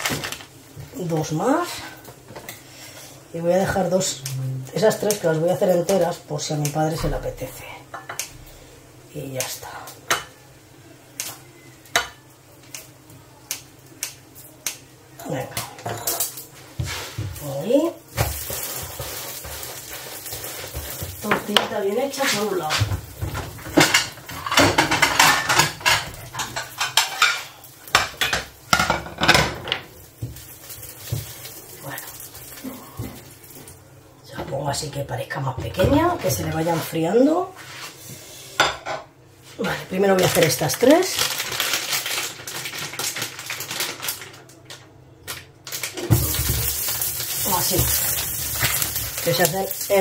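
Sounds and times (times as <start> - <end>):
sausages sizzling in oil: 0.0 - 34.2, 45.7 - 50.0
utensils clattering on pans: 15.2 - 17.4, 18.1 - 31.5, 46.0 - 50.0.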